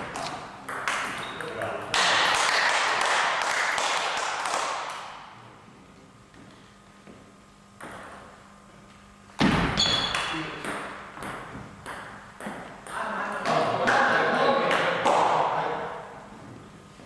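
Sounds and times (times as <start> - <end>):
table tennis ball hits: 0.0 - 5.3, 7.8 - 8.3, 9.4 - 14.1.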